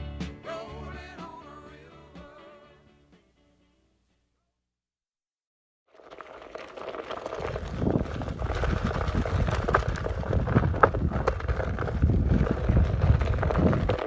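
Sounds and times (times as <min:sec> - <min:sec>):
tyre rolling over gravel: 0:05.9 - 0:14.0
wind rumbling on microphone: 0:06.8 - 0:14.0.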